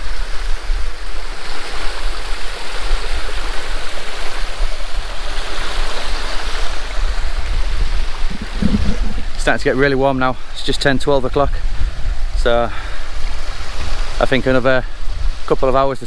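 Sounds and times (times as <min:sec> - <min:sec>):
mountain stream rushing: 0:00.0 - 0:09.8.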